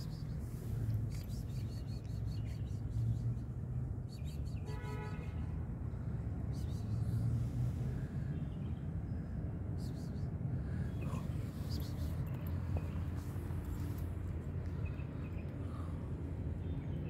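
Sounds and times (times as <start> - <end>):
steady low rumble: 5.6 - 17.0.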